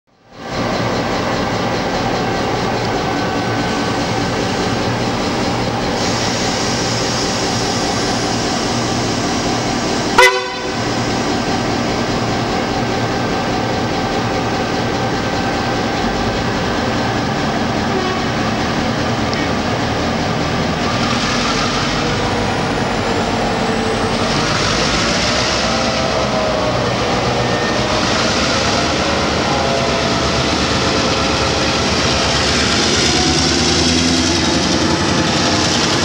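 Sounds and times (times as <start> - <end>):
diesel locomotive engine running: 0.1 - 36.0
locomotive horn blip: 10.2 - 10.8.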